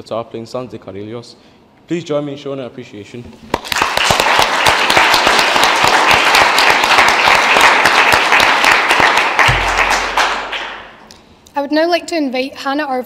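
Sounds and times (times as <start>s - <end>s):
audience applauding: 3.5s - 11.0s
low thump: 9.5s - 10.2s.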